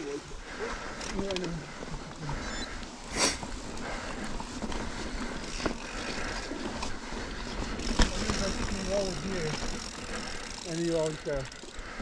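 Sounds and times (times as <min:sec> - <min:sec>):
tyres rolling over rock and dirt: 0:04.1 - 0:11.4.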